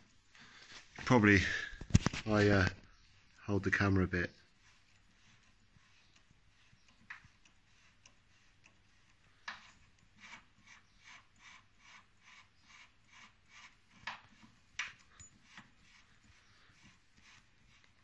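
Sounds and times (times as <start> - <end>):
faint metal clicks and rubbing: 0.0 - 18.0
soft ticks: 3.3 - 12.0.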